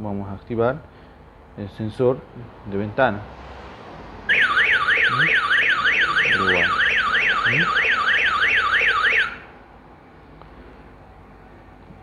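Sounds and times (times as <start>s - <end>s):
alarm siren warbling wail: 4.3s - 9.5s.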